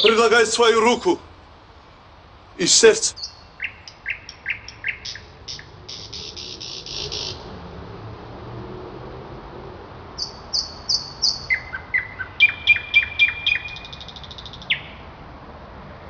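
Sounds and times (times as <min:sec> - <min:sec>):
songbird singing: 0:00.0 - 0:07.5, 0:10.2 - 0:15.1.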